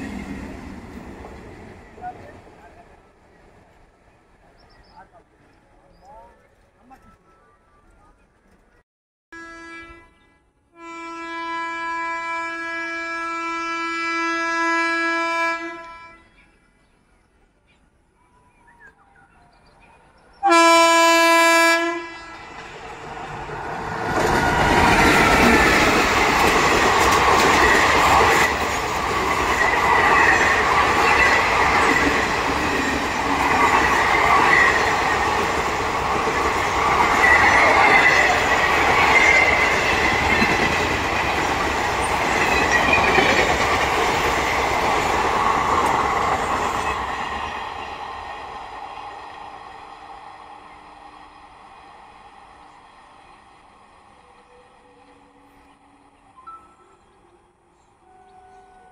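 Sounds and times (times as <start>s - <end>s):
train wheels rumbling on rails: 0.0s - 7.3s, 22.3s - 54.3s
train horn blast: 9.3s - 16.3s, 20.4s - 22.5s, 58.0s - 58.9s.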